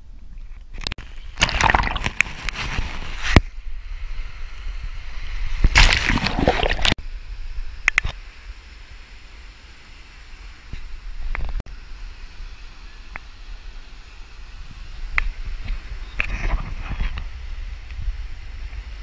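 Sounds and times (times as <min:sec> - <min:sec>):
seawater sloshing and splashing: 0:01.4 - 0:03.2, 0:05.7 - 0:07.0.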